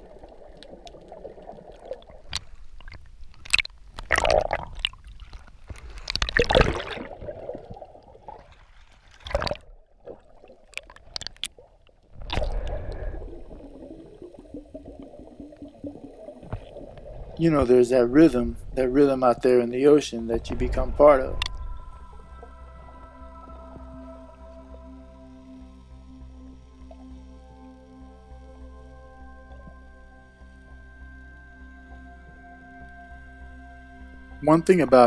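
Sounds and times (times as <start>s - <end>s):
water sloshing and gurgling: 0.0s - 24.9s.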